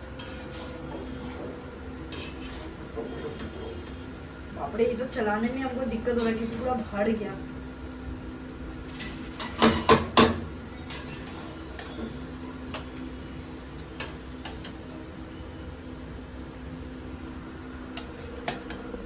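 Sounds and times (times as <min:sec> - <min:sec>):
metal spatula scraping a pan: 0:00.0 - 0:03.8, 0:06.1 - 0:06.8, 0:08.9 - 0:10.0, 0:10.8 - 0:12.8.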